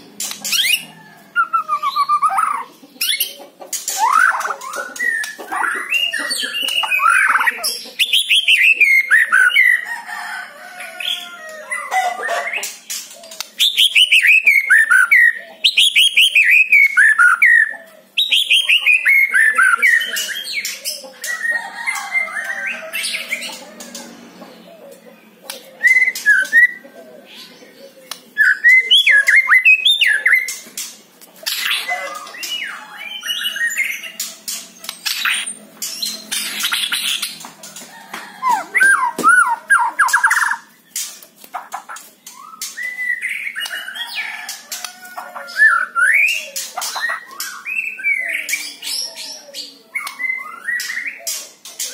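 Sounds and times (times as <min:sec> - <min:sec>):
sharp bird clicks: 0:00.2 - 0:00.8
bird singing falling notes: 0:38.4 - 0:41.2.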